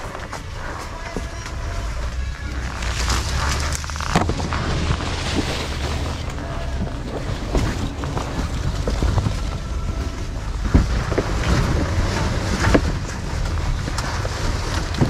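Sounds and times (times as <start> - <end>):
leaves rustling: 0.0 - 15.0
apples dropping into a bucket: 2.2 - 10.0.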